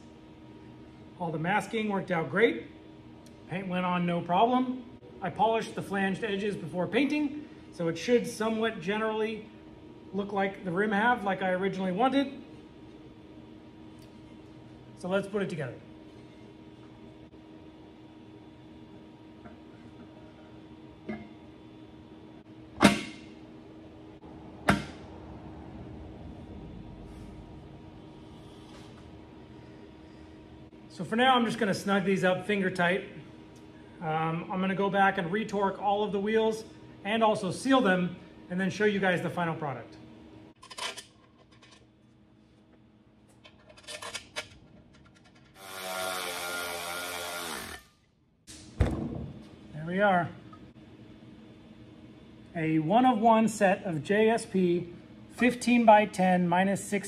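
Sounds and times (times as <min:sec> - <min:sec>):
cordless power ratchet running: 0:45.5 - 0:48.0.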